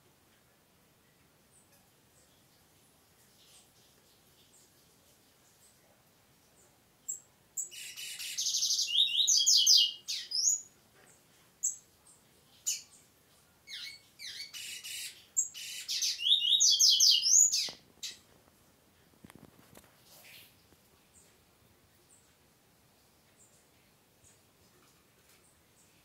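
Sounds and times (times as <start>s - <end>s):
bird chirps: 7.1s - 10.7s, 13.7s - 18.2s
bird singing buzzy trills: 13.7s - 17.8s.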